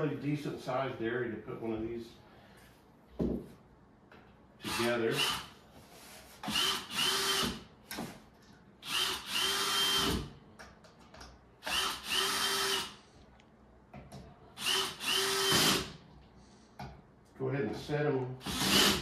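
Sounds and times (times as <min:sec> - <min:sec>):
power drill driving screws: 0:06.4 - 0:07.6, 0:08.8 - 0:10.3, 0:11.6 - 0:13.0, 0:14.6 - 0:15.9, 0:18.4 - 0:19.0.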